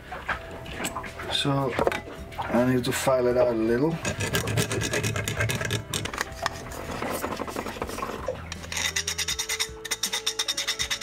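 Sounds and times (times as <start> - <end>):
metal file rasping: 4.0 - 11.0.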